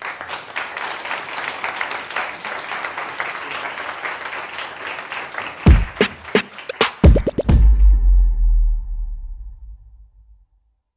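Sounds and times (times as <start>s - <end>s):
audience applauding: 0.0s - 7.6s
electronic music with deep bass: 5.7s - 9.8s.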